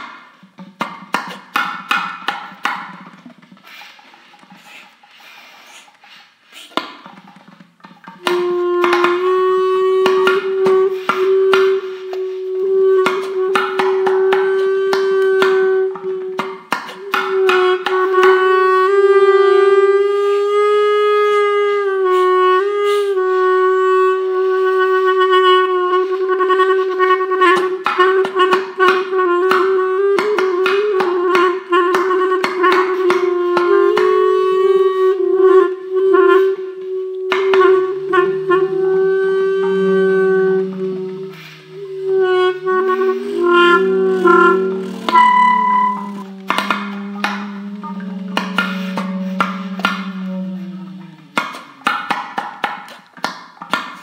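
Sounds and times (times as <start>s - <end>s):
long held wavering note: 8.2s - 51.8s.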